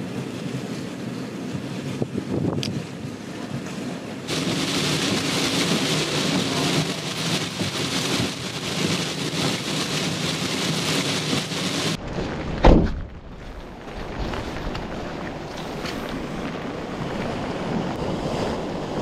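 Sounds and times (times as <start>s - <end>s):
heavy rain in strong wind: 0.0s - 19.0s
wind noise: 0.0s - 19.0s
loud low thump: 12.2s - 13.2s.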